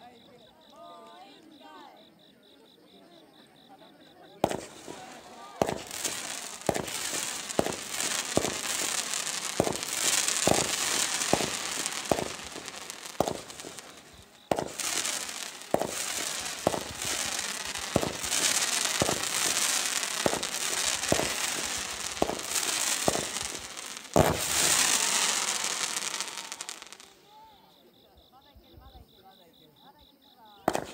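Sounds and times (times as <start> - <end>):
firework bang: 4.4 - 27.0, 30.7 - 30.9
hiss of burning sparks: 4.4 - 27.1, 30.7 - 30.9
fireworks popping: 4.4 - 27.2, 30.7 - 30.9.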